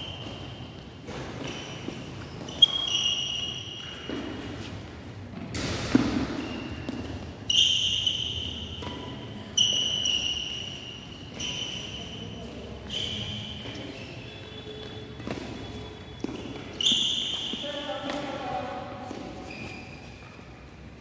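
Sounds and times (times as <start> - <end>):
shoes squeaking on court: 0.0 - 21.0
racket hitting shuttlecock: 0.2 - 4.6, 5.3 - 7.3, 8.4 - 10.0.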